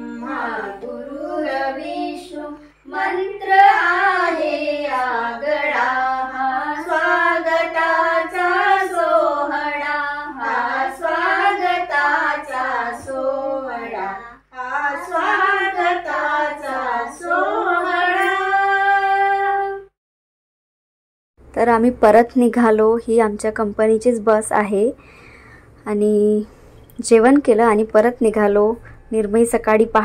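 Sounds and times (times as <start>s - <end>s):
girl and women singing: 0.0s - 19.9s.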